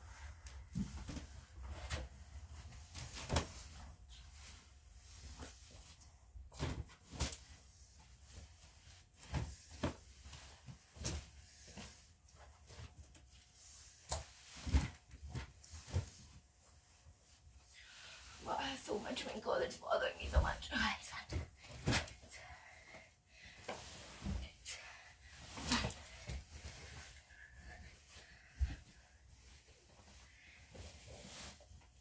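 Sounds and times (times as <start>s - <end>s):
fabric rustling: 23.4s - 32.0s.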